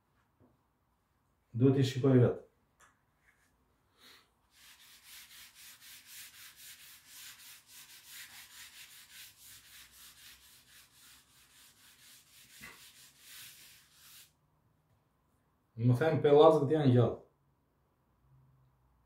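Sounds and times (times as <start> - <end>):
cloth rubbing chalk off blackboard: 4.5 - 14.4.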